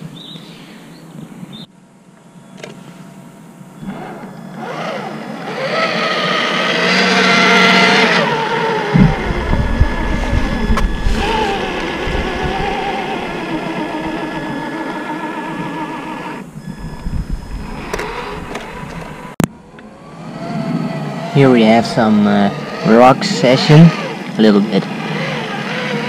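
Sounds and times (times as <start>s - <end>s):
electric motor and gears whining: 3.6s - 26.0s
low rumble: 8.8s - 20.8s.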